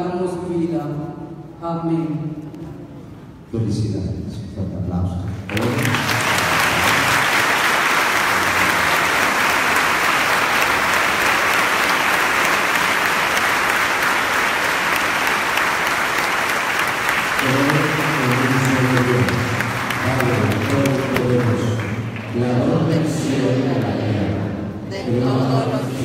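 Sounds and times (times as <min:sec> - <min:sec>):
crowd applauding: 0:05.5 - 0:23.2.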